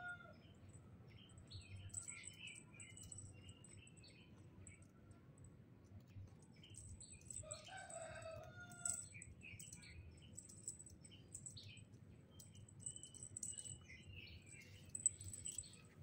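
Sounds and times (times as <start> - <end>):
faint rooster crowing: 0.0 - 0.5, 7.4 - 9.2
small birds chirping: 0.0 - 4.9, 6.2 - 16.0.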